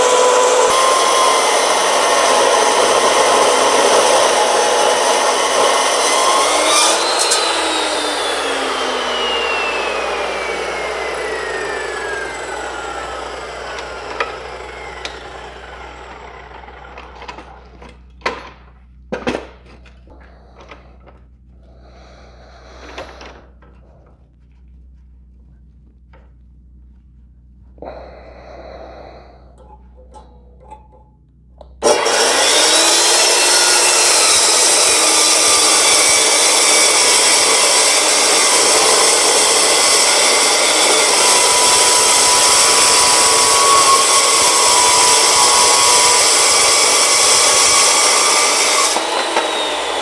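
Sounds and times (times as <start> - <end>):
chop saw grinding steel: 0.0 - 18.4, 29.2 - 50.0
knocks and clunks: 17.1 - 21.2.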